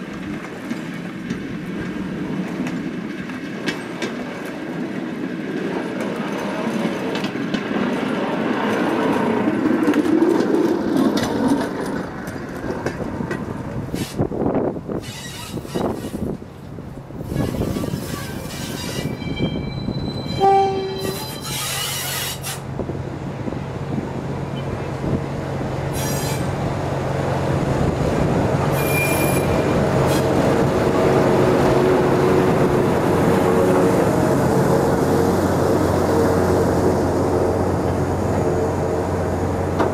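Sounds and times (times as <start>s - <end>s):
carriages on track: 0.0s - 39.9s
diesel locomotive engine hum: 0.0s - 39.9s
wind on microphone: 11.8s - 21.2s
locomotive horn toot: 18.9s - 22.3s, 28.7s - 30.3s.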